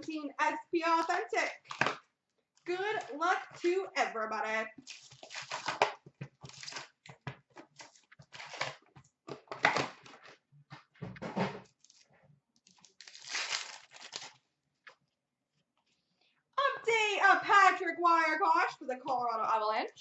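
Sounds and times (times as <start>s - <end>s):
foil wrappers crinkling and tearing: 4.8s - 7.1s, 7.7s - 8.8s, 12.6s - 14.5s.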